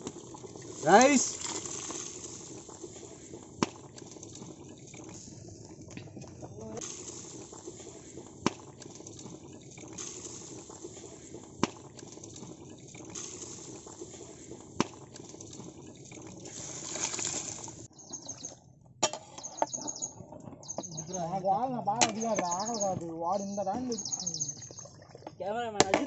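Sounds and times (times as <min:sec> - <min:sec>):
water boiling hard in pot: 0:00.0 - 0:18.4, 0:20.2 - 0:26.0
bird chirps: 0:17.9 - 0:18.6, 0:19.3 - 0:25.0.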